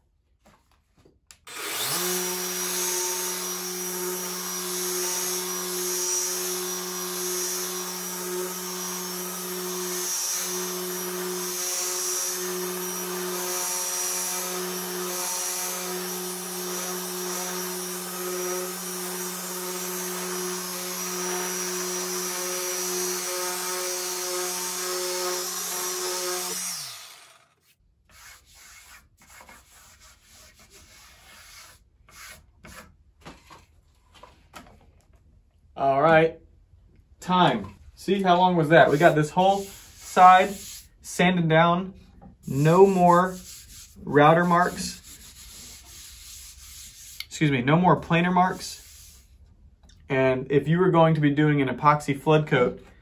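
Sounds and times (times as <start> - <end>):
orbit sander running: 1.5 - 27.6.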